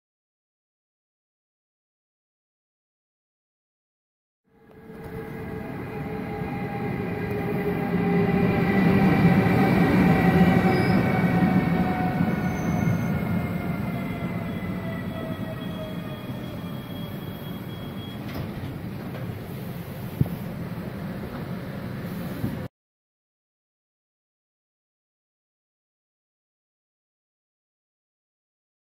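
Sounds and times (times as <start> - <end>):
train rolling and slowing: 4.5 - 22.7
whining tones falling in pitch: 4.6 - 18.0.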